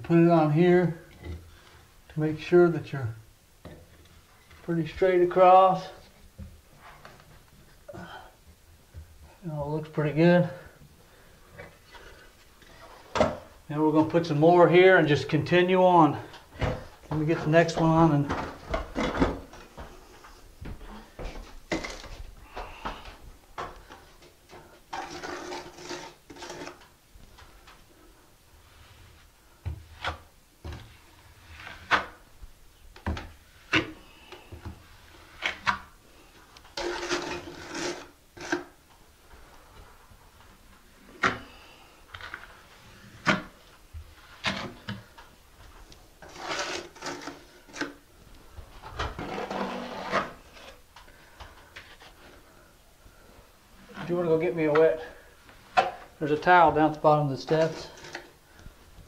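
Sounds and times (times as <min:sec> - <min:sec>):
trowel scraping mortar: 0:25.0 - 0:26.8, 0:36.8 - 0:38.8, 0:46.2 - 0:48.0, 0:49.2 - 0:50.8.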